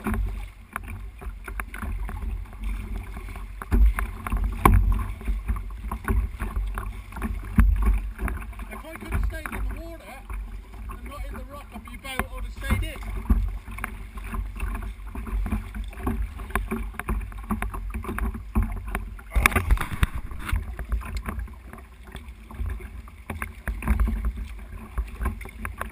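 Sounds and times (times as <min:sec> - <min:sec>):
water splashing from paddle: 0:00.0 - 0:25.9
wind rumble on microphone: 0:13.1 - 0:21.6.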